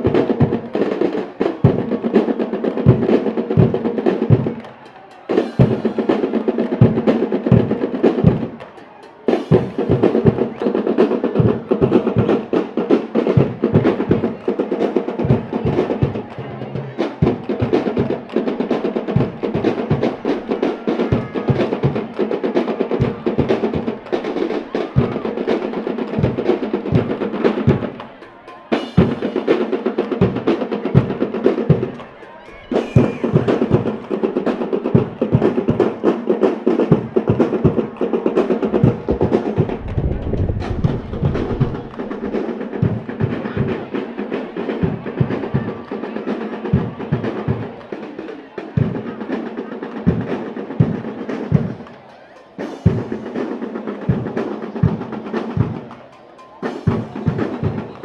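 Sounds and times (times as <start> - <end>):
snare drum rolls: 0.0 - 58.0
bass drum hits: 38.8 - 43.0.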